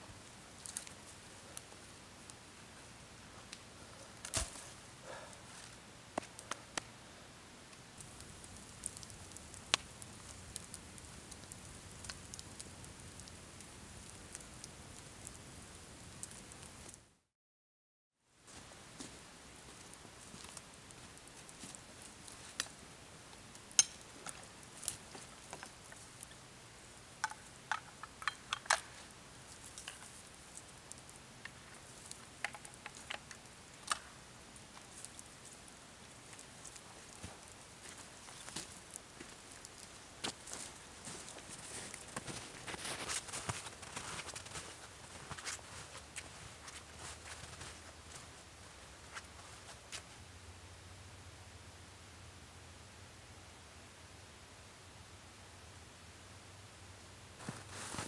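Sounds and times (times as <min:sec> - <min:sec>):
campfire crackling: 0:00.0 - 0:17.2, 0:18.4 - 0:51.2, 0:57.3 - 0:58.0
twigs snapping: 0:04.2 - 0:04.8, 0:27.2 - 0:35.6.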